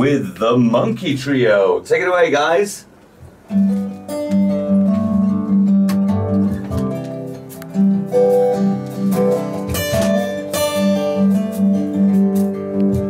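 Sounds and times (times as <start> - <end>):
acoustic guitars strummed: 3.3 - 13.0.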